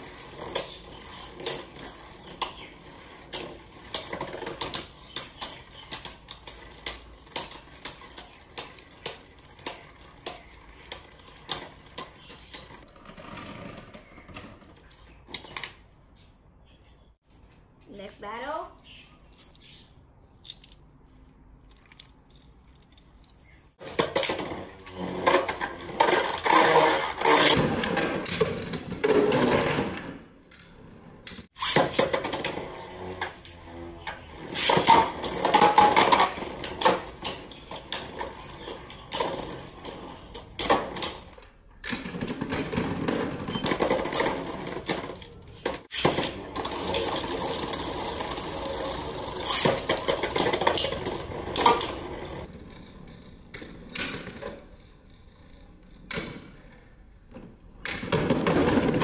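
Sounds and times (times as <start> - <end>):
spinning tops whirring and clattering: 31.5 - 56.7.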